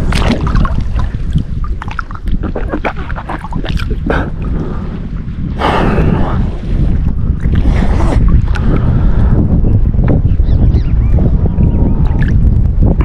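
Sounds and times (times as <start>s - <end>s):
water lapping: 0.0s - 9.3s
wind rumbling on microphone: 0.0s - 13.0s.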